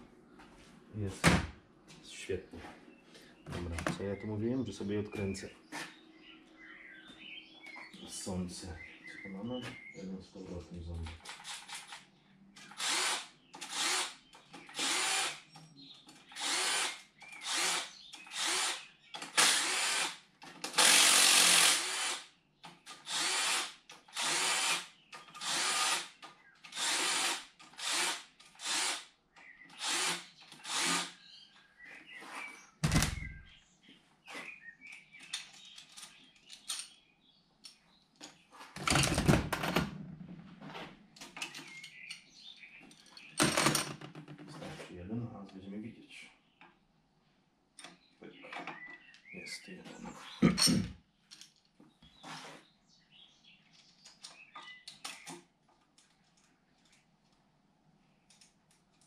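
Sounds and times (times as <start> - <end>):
cordless drill bursts: 12.7 - 15.4, 16.4 - 22.3, 22.9 - 29.1, 29.8 - 31.2.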